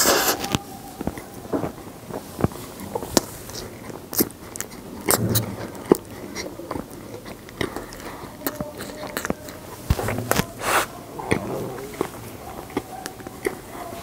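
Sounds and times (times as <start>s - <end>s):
crunchy bites and chewing: 0.0s - 13.8s.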